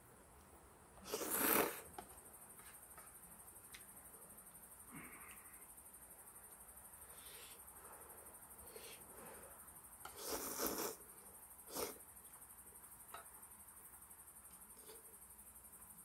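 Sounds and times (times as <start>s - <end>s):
person slurping noodles: 1.0s - 1.8s, 10.1s - 11.0s.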